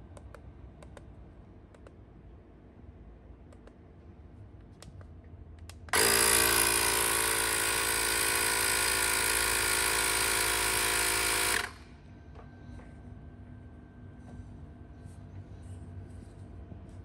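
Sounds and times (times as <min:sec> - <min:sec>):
tyre inflator compressor running: 0:05.9 - 0:12.0.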